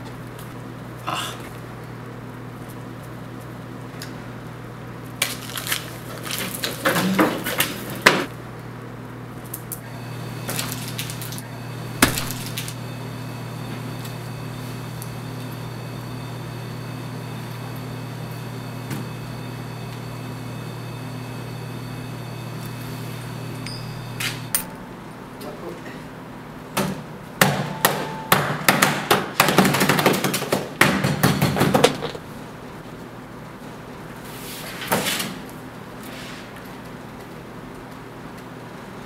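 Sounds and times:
steady low hum: 7.8 - 28.8.

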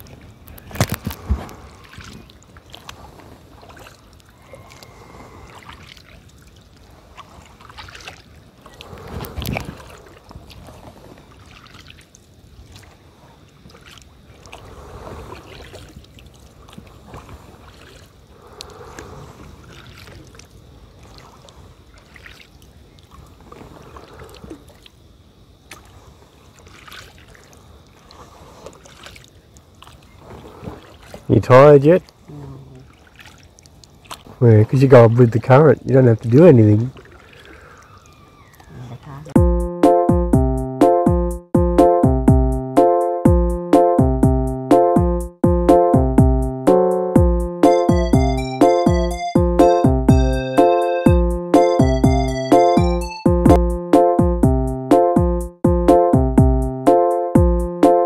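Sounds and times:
low water rush: 0.0 - 25.0
paddle swashing through water: 0.0 - 25.0, 25.6 - 34.5, 36.8 - 38.8
faint water drips: 1.7 - 14.6, 25.6 - 31.3, 32.0 - 34.4, 36.2 - 39.4.

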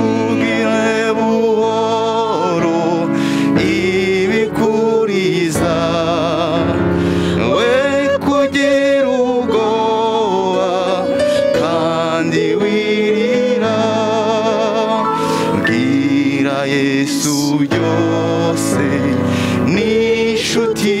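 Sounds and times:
solo voice singing: 0.0 - 21.0
sustained accompaniment: 0.0 - 21.0.

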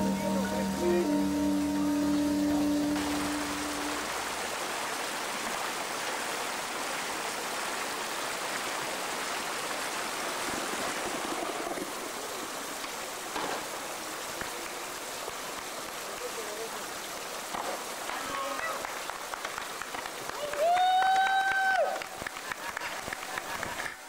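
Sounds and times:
background music: 0.0 - 4.2
street ambience hiss: 0.0 - 24.0.

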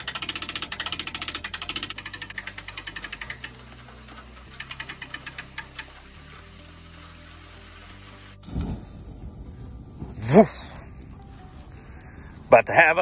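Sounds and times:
hand winch clicking: 0.0 - 8.4.

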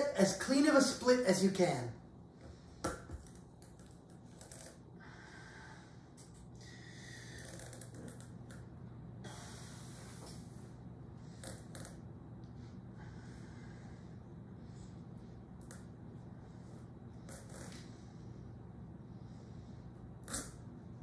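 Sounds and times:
strained breathing: 5.0 - 8.1, 9.2 - 11.7, 12.5 - 15.5, 16.2 - 20.7.

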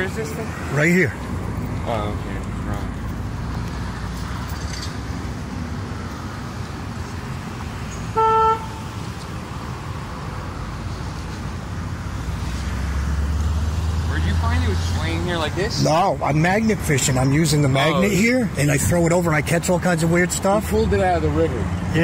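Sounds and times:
road traffic rumble: 0.0 - 22.0
vehicle engine hum: 0.0 - 22.0
car horn honk: 8.1 - 8.9.

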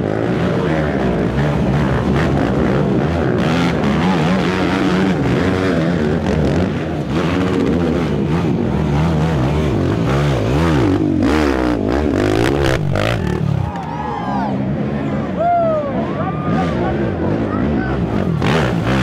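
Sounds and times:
atv engines revving hard: 0.0 - 19.0.

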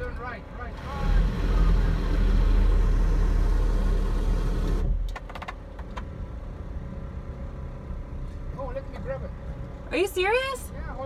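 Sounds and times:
motor rumbling: 0.8 - 5.1.

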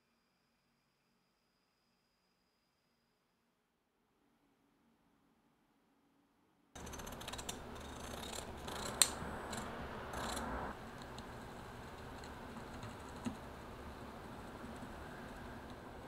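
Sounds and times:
scissors cutting paper: 6.8 - 11.2
faint steady hiss: 7.5 - 16.0.

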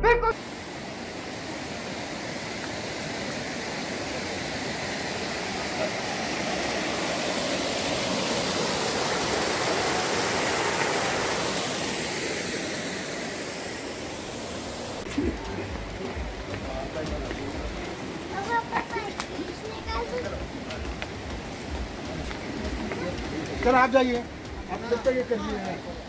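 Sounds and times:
water gushing into stone tank: 2.6 - 14.0.

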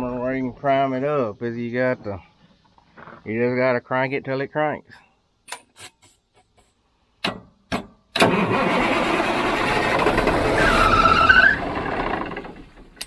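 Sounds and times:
diesel engine cranking: 8.1 - 13.0
high squeal: 10.4 - 12.2.

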